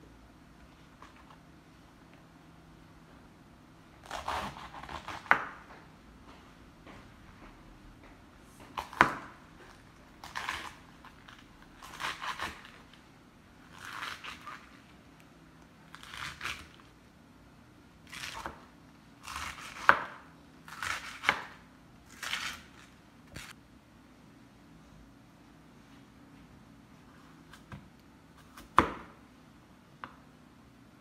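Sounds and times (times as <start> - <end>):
knife slicing cabbage: 4.0 - 5.6, 8.8 - 13.0, 13.6 - 14.8, 15.9 - 16.9, 19.2 - 23.6.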